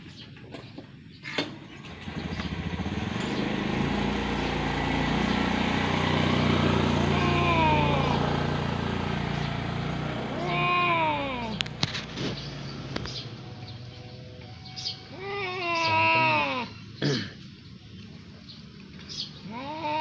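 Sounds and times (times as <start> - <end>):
vehicle engine hum: 1.1 - 20.0
cats yowling: 6.9 - 8.5, 10.3 - 11.7, 15.1 - 16.7, 19.4 - 20.0.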